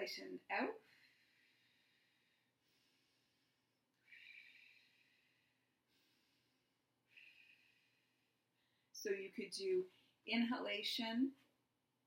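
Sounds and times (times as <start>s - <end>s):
faint slow breathing: 0.8s - 9.0s.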